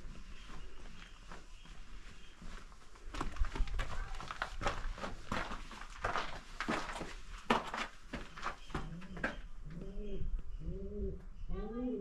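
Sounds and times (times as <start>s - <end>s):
footsteps on gravel: 0.1s - 9.3s
pigeon cooing: 8.9s - 12.0s.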